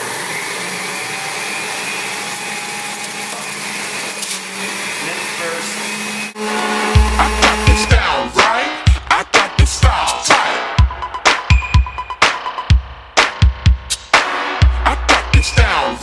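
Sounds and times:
electric juicer motor humming: 0.0s - 7.0s
music with heavy bass beat: 6.4s - 16.0s.

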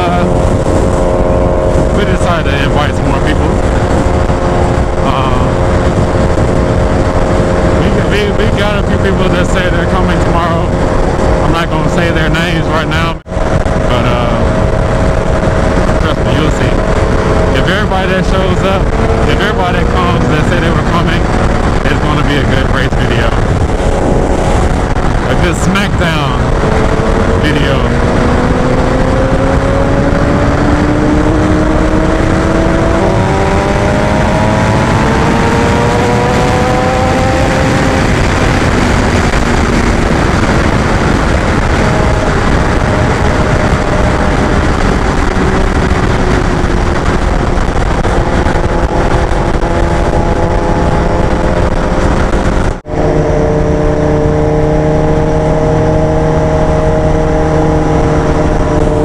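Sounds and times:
motorcycle engine revving: 0.0s - 59.0s
wind rush on microphone: 0.0s - 59.0s.

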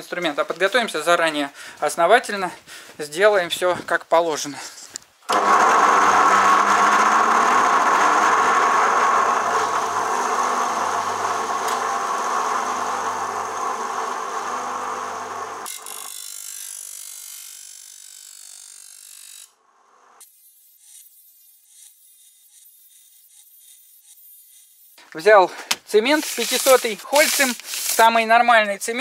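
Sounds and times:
bench grinder whining: 5.3s - 20.2s.

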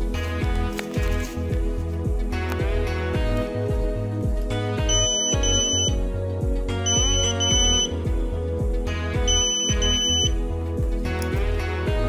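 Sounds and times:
buzzer short high beeps: 4.9s - 6.1s, 6.8s - 8.0s, 9.2s - 10.4s.

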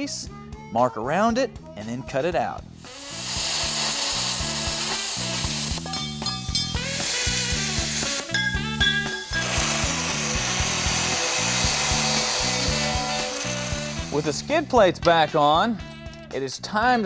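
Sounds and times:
metal cutting hiss: 2.8s - 14.7s.

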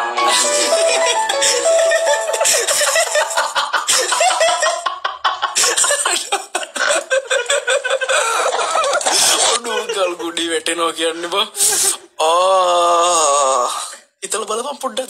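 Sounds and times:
men laughing loudly: 0.2s - 10.2s.

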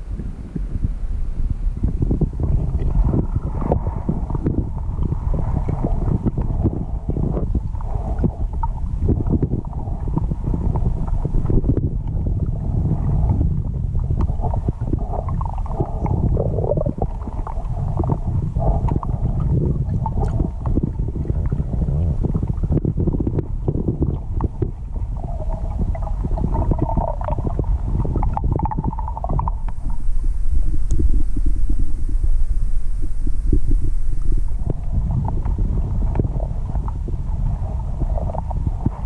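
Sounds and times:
muffled underwater river rumble: 0.0s - 39.0s.

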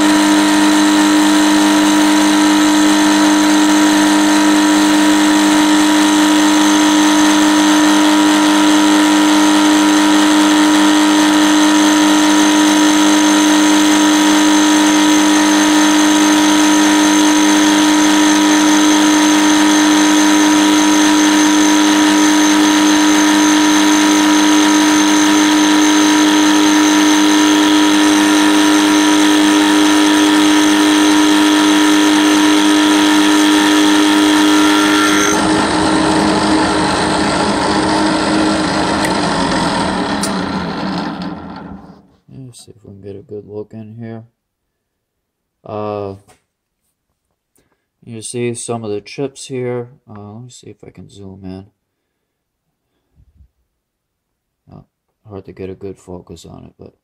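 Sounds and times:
milling machine cutting steel: 0.0s - 42.0s.

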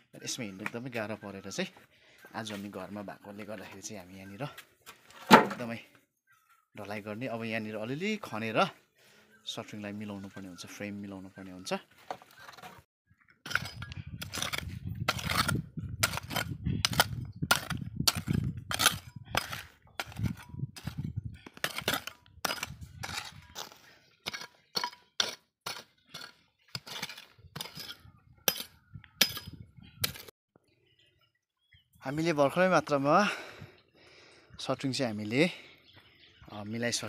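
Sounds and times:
hoe chopping stony soil: 13.4s - 30.3s.

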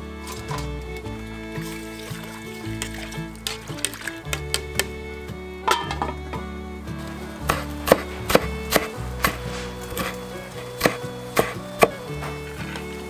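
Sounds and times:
soft background music: 0.0s - 13.0s
cleaver chopping on wooden board: 7.5s - 10.2s, 10.8s - 12.0s.

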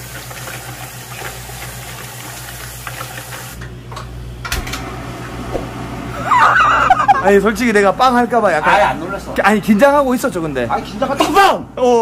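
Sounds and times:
faucet water running into pan: 0.0s - 3.6s.

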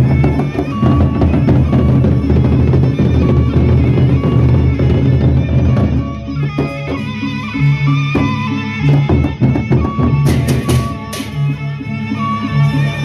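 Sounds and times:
barrel drums beaten rhythmically: 0.0s - 11.6s
hand cymbals clashing: 10.2s - 11.7s.

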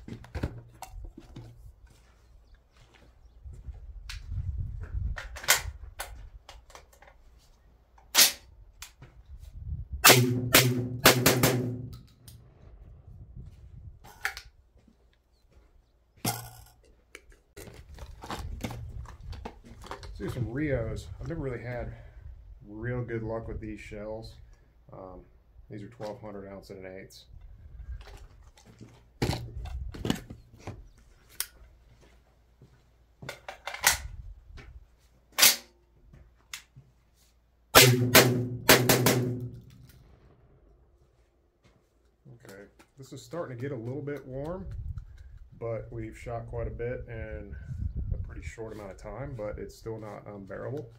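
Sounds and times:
shotgun shots: 10.0s - 11.9s, 37.8s - 39.7s
shotgun shells clicking and knocking: 16.3s - 20.4s.

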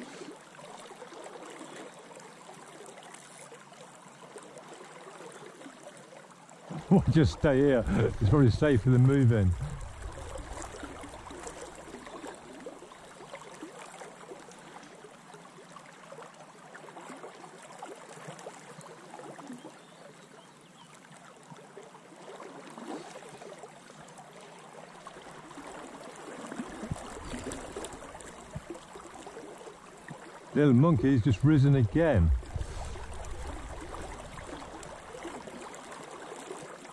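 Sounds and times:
river water flowing: 0.0s - 36.9s
small water splashes: 0.0s - 36.9s.

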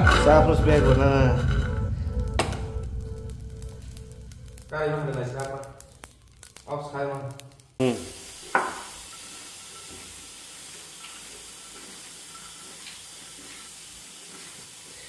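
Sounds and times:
steady hiss: 2.5s - 15.0s.

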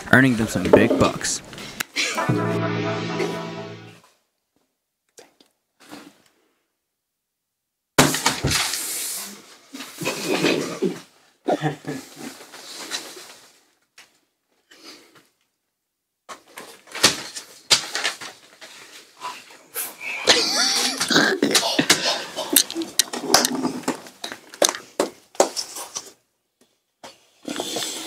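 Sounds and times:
people stifling laughter: 20.2s - 21.1s.

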